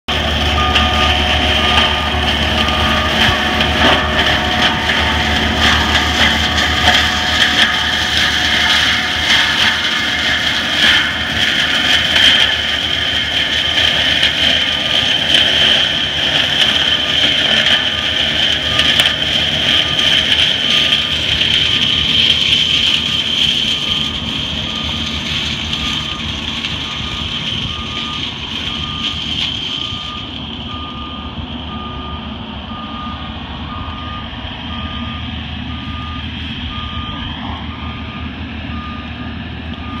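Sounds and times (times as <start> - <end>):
diesel engine rumble: 0.0 - 40.0
high-pitched mulcher whine: 0.1 - 40.0
backup alarm beeping: 0.4 - 10.8.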